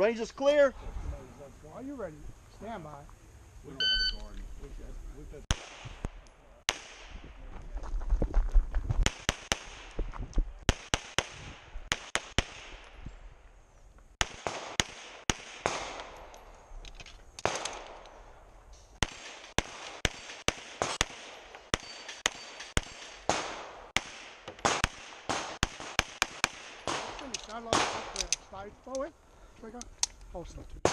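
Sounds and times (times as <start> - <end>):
pistol shots: 5.5 - 7.2, 10.7 - 12.9, 14.2 - 16.3, 17.4 - 18.1, 19.0 - 28.4.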